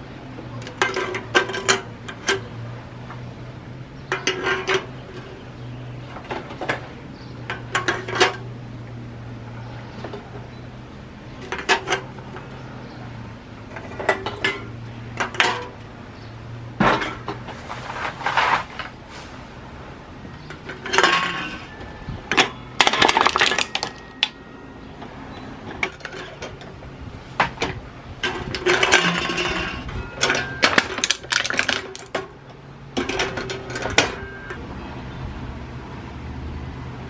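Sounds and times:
hard objects clinking: 20.4s - 24.4s, 28.2s - 32.2s.

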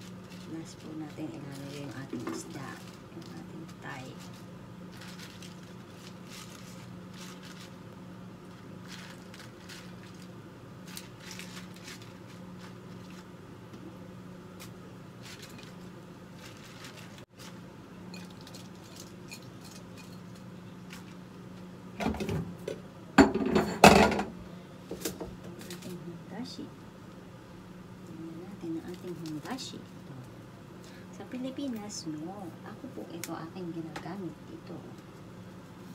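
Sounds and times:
greens rustling: 0.0s - 13.4s, 14.5s - 19.3s
steady low hum: 0.0s - 35.9s
dishes clattering: 23.2s - 24.4s.

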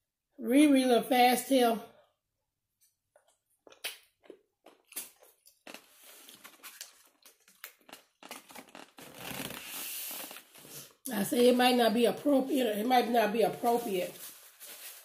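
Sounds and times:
rustling: 13.6s - 15.0s.

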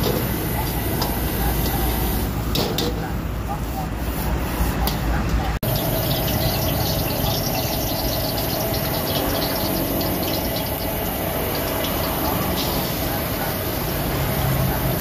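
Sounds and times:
sizzling and crackling pan: 5.6s - 15.0s.

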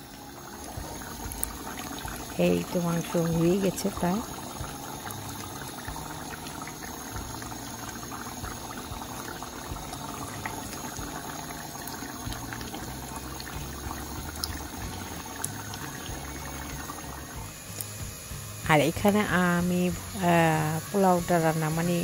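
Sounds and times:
curry bubbling in a pan: 0.0s - 20.2s
low steady hum: 0.0s - 22.0s.

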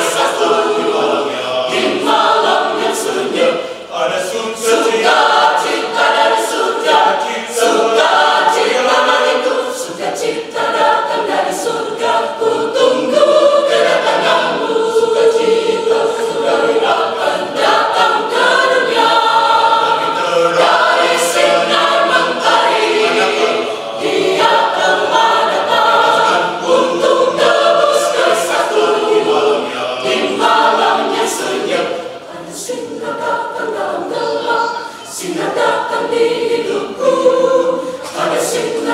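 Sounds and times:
mixed choir singing in harmony: 0.0s - 38.9s.

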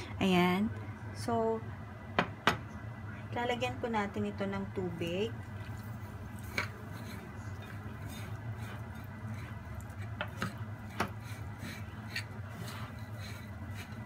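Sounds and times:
low steady hum: 0.0s - 14.0s
spoon scraping ceramic bowl: 5.6s - 14.0s.

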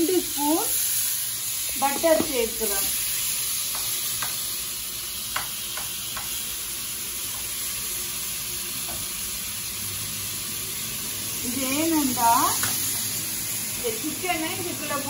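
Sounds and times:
butter sizzling in a frying pan: 0.0s - 15.0s
metal spoon tapping a pan: 3.7s - 4.4s, 5.3s - 6.4s, 12.6s - 12.8s.

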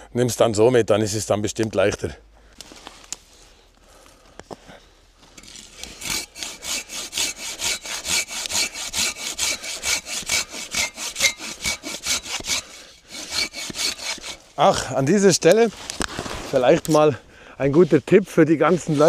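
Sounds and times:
hand saw cutting wood: 5.4s - 14.8s.

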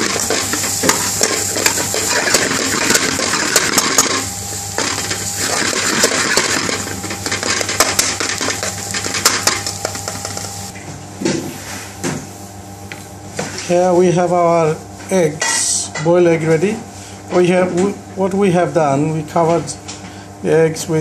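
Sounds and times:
spatula scraping steel pan: 0.0s - 10.2s
vegetables sizzling: 0.0s - 10.8s.

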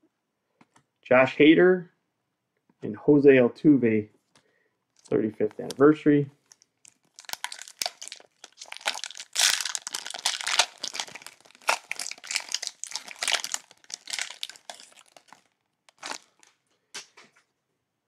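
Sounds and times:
cellophane wrapper crinkling: 4.9s - 16.6s.

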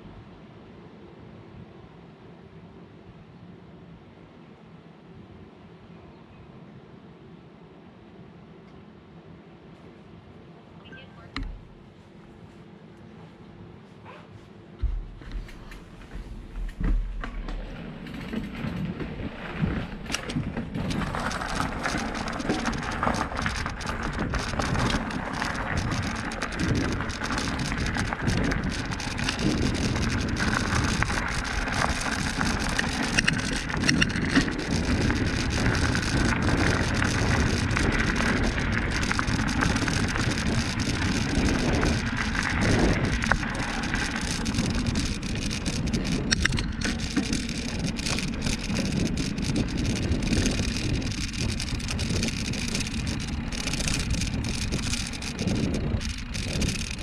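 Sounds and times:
bike rattling over bumps: 11.4s - 11.9s, 14.7s - 57.0s
bicycle tyres rolling on dirt: 14.6s - 57.0s.

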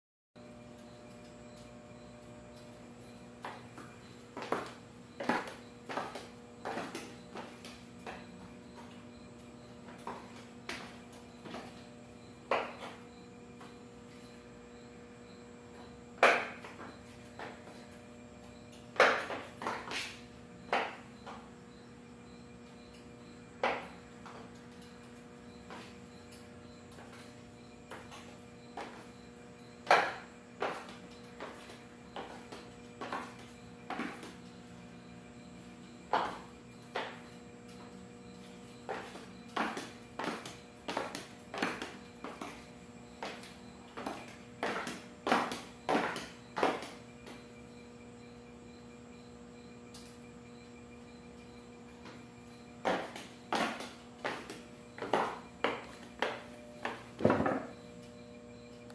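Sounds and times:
faint steady hum: 0.4s - 58.9s
heels clacking on concrete: 3.2s - 13.0s, 18.5s - 21.5s, 27.0s - 34.4s, 35.4s - 47.4s, 52.0s - 57.8s.

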